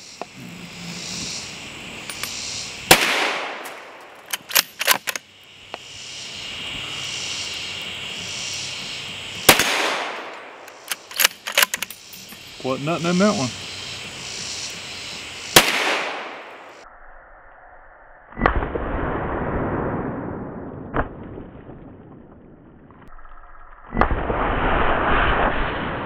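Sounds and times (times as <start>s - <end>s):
insects droning: 0.0s - 18.3s
sharp clicks: 2.1s - 5.8s, 9.5s - 12.4s
rifle shots echoing: 2.9s - 5.1s, 9.4s - 11.8s, 15.5s - 16.6s.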